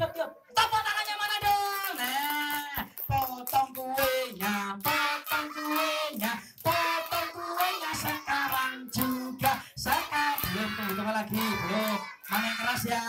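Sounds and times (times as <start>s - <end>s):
children singing: 4.8s - 13.0s.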